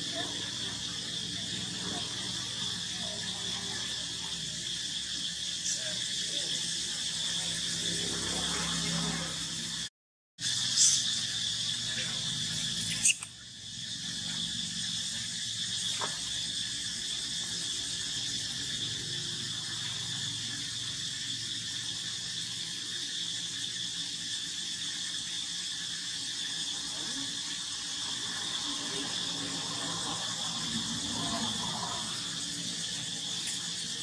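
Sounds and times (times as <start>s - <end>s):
insects trilling: 0.0s - 34.0s.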